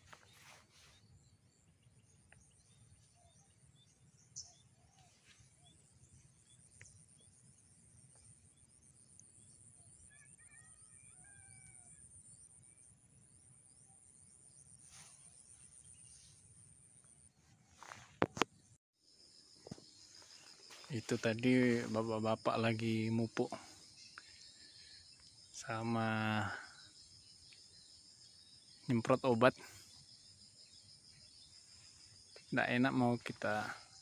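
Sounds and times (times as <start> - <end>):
bird chirps: 0.0 - 16.4.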